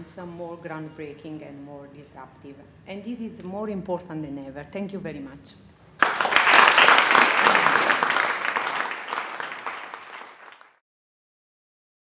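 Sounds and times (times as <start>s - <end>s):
audience applauding: 6.0s - 10.8s.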